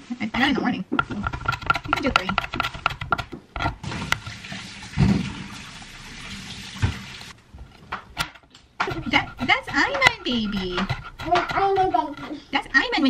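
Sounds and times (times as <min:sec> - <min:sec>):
water running: 0:03.7 - 0:07.4.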